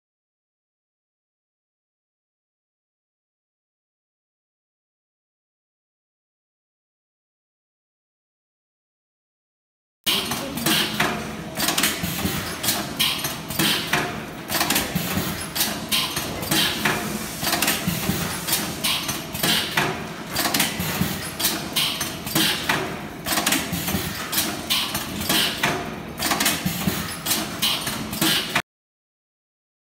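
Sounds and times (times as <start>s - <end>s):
machine clacking: 10.1s - 28.6s.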